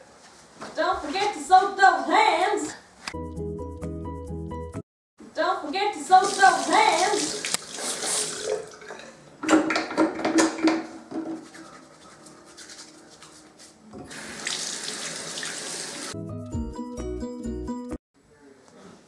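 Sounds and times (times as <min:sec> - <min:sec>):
tap running into sink: 0:09.4 - 0:11.4.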